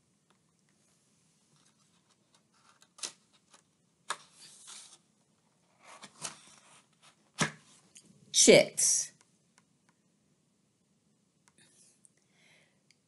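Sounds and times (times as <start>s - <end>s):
paper rustles: 1.5s - 5.1s
book pages turning: 1.5s - 7.8s.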